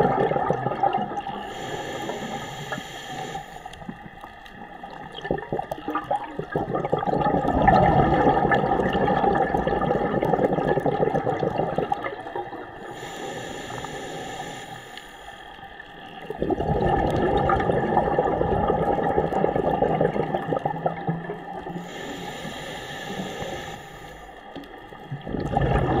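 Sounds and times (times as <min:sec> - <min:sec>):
exhaled bubbles underwater: 0:00.0 - 0:14.7, 0:15.5 - 0:26.0
regulator hissing inhalation: 0:01.3 - 0:04.0, 0:12.8 - 0:15.8, 0:21.6 - 0:24.6.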